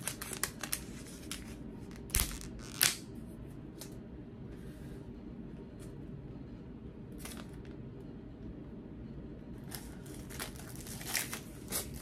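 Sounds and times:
packaging tearing and crinkling: 0.0s - 3.0s, 9.7s - 12.0s
low room hum: 0.0s - 12.0s.

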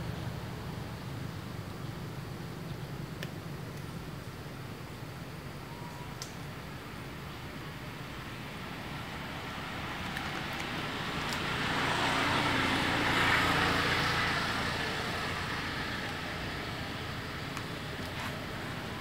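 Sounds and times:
road vehicle passing: 7.0s - 19.0s.

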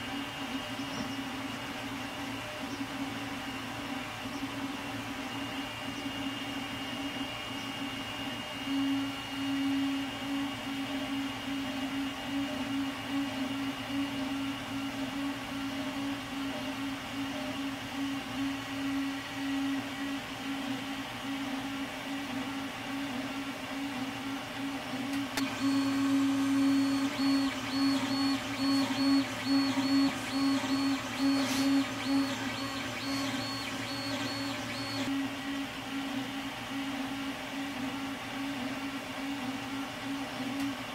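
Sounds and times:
printer fans: 0.0s - 40.9s
high pulsing whine: 25.4s - 35.1s
stepper motors humming: 25.4s - 35.1s.

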